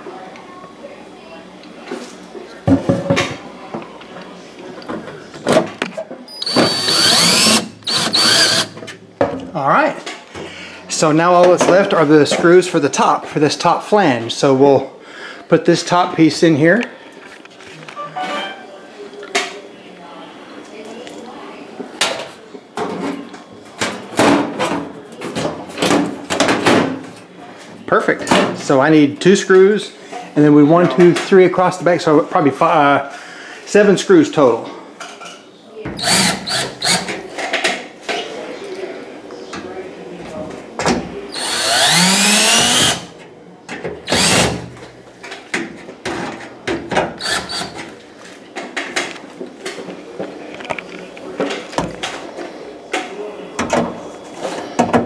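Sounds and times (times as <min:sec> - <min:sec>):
cordless drill motor whining: 0:06.4 - 0:08.7, 0:36.0 - 0:37.1, 0:41.4 - 0:43.0, 0:44.1 - 0:44.4.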